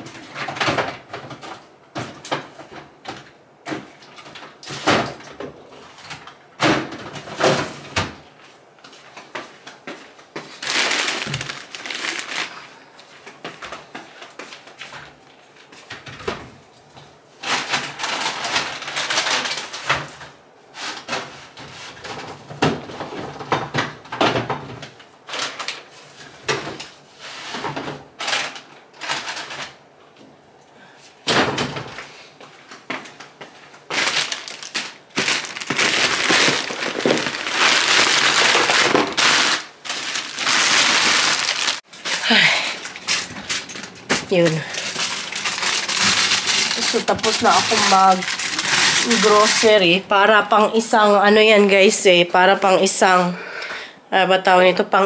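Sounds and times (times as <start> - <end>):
plastic bags rustling: 10.3 - 14.7, 17.4 - 19.9, 25.2 - 25.9, 28.2 - 29.8, 33.6 - 51.1.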